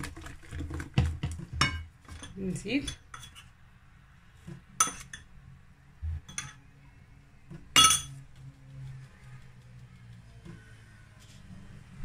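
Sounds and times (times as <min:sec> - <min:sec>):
metal spoon clinking bowl: 0:04.8 - 0:05.3, 0:06.3 - 0:06.6, 0:07.8 - 0:08.2.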